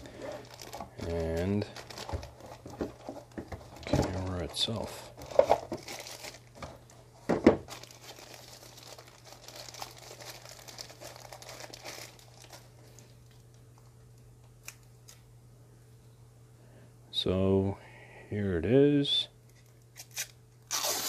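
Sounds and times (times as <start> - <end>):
packaging wrap rustling: 0.0 - 13.9.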